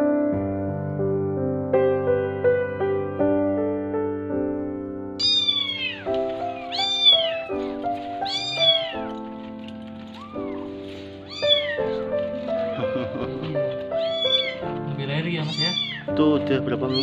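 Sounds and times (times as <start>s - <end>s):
soft piano music: 0.0s - 17.0s
kittens meowing: 5.2s - 9.2s, 10.0s - 16.2s.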